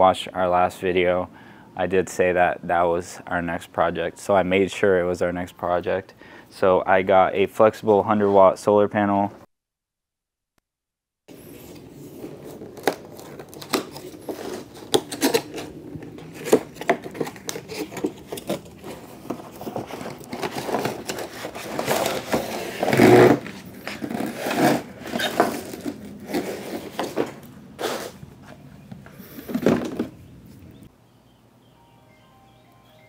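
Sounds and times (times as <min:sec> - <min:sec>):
tape tearing from cardboard: 0:11.4 - 0:28.2
cardboard box being opened: 0:11.6 - 0:28.2.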